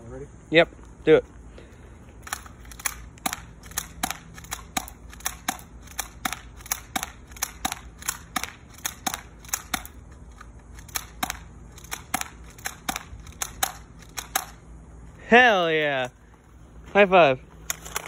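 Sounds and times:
airsoft pistol shots: 2.3 - 10.0, 10.8 - 14.6.

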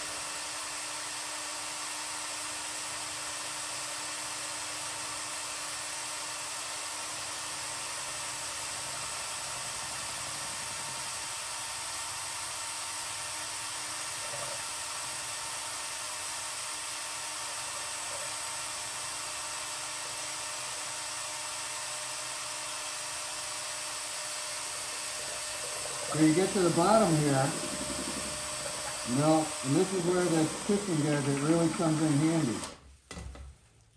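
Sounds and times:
electric motor whirring: 6.6 - 32.8.

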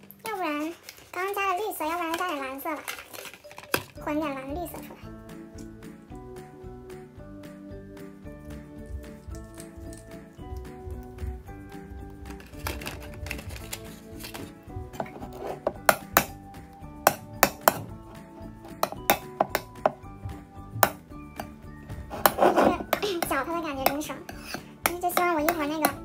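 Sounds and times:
faint background music: 0.0 - 26.0
spoon clinking against bowl: 18.7 - 20.0.

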